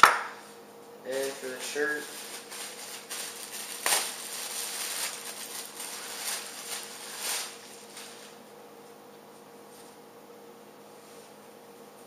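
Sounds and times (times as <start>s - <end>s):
plastic bag crinkling: 1.1s - 8.4s.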